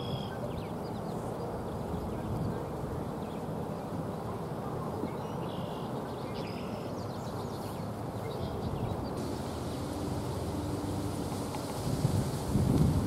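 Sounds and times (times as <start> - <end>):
wind on microphone: 0.0 - 3.9, 8.5 - 13.0
insect buzz: 9.2 - 13.0.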